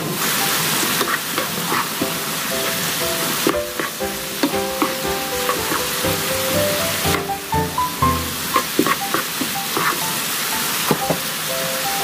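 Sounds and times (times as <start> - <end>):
vegetables sizzling in oil: 0.0 - 12.0
light background music: 2.1 - 12.0
spatula scraping pan: 4.8 - 6.0.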